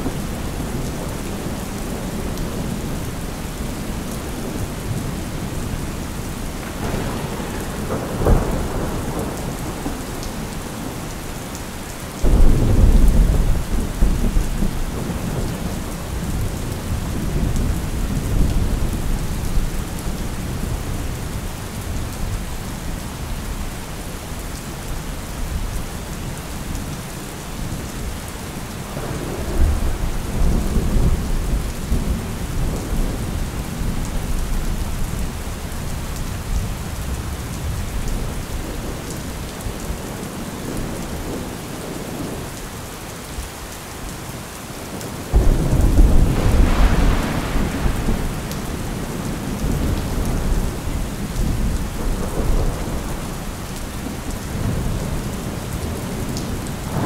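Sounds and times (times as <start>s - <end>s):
steady rain: 0.0s - 57.0s
rolling thunder: 6.6s - 10.6s, 12.2s - 19.6s, 28.9s - 34.8s, 45.3s - 55.3s, 55.9s - 57.0s.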